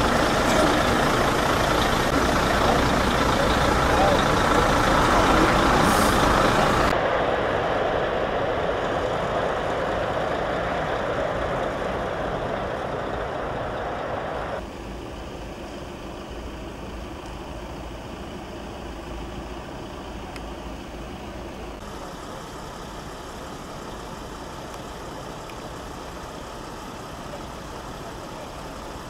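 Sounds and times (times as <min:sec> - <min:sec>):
high hiss: 0:00.0 - 0:14.6
diesel engine idling: 0:00.0 - 0:29.0.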